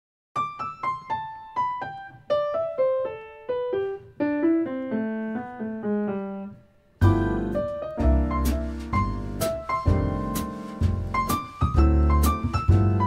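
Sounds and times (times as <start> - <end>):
piano melody: 0.4 - 13.0.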